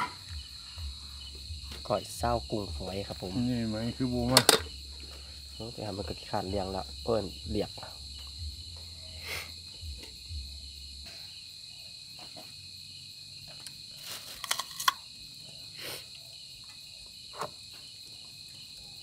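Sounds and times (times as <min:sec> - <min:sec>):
crickets chirping: 0:00.0 - 0:19.0
sharp clicks and rattles: 0:04.2 - 0:04.8.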